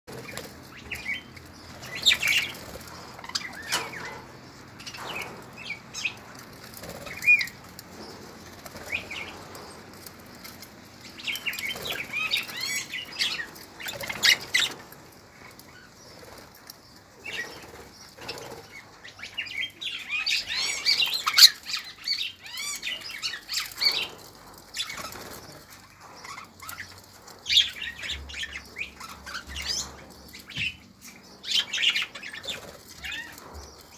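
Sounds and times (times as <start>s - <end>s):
budgerigars chirping: 17.2s - 24.2s.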